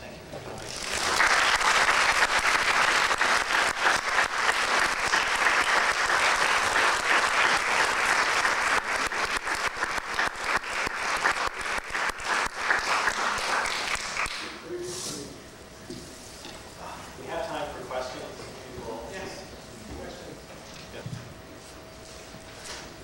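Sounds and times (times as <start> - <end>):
audience clapping: 0.6 - 14.5.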